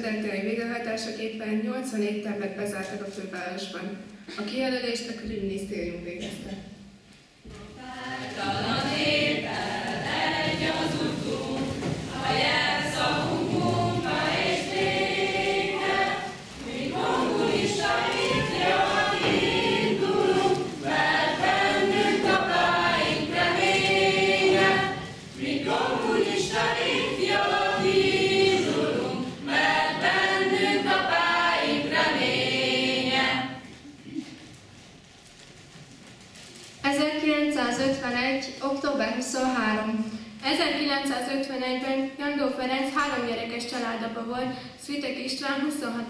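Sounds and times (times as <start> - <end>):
choir singing: 7.8 - 33.7.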